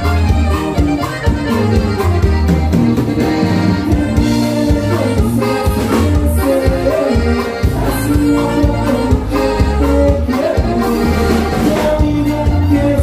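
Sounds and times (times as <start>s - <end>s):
accordion dance music: 0.0s - 13.0s
rhythmic bass line: 0.0s - 13.0s.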